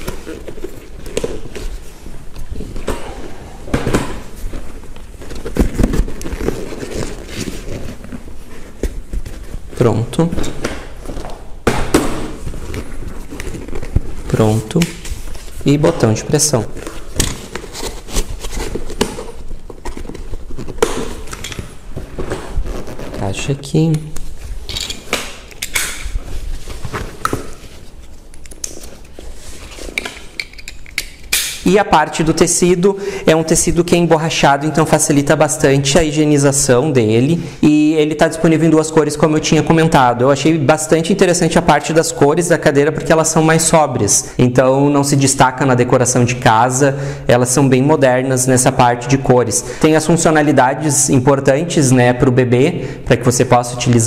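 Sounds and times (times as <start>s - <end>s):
fabric seat cover rustling: 21.8s - 23.5s.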